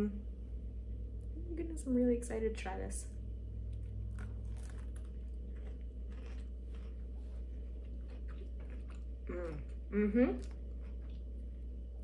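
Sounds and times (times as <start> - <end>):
steady low hum: 0.0 - 12.0
person crunching and chewing: 3.7 - 11.8.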